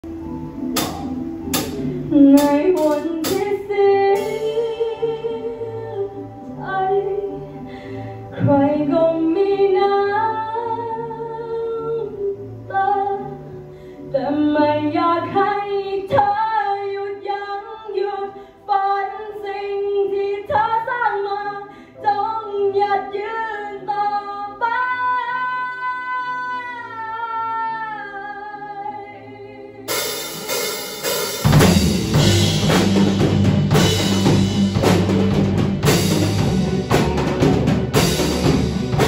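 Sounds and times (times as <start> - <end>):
drum kit with cymbals: 0.0 - 4.8, 29.9 - 39.0
electric guitars: 0.0 - 9.6, 29.9 - 39.0
bass guitar: 0.0 - 15.4, 29.9 - 39.0
woman singing: 2.1 - 13.5, 14.1 - 30.0.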